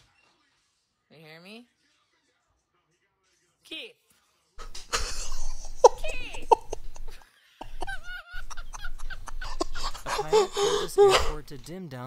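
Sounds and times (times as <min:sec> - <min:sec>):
man laughing hard: 0:04.6 - 0:11.4.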